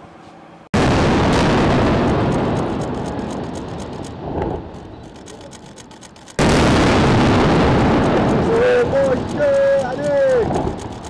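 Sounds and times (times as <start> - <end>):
bomb blast rumble: 0.8 - 4.8, 6.4 - 9.4.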